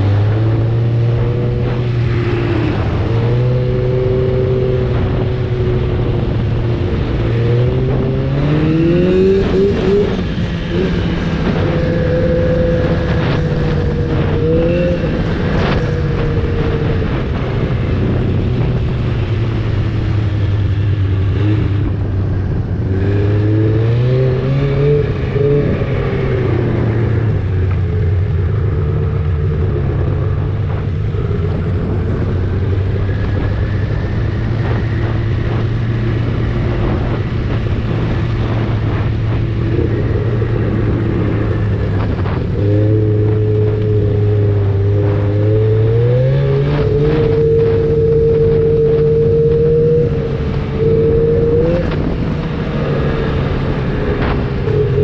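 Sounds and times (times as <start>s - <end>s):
snowmobile engine revving: 34.4s - 55.0s.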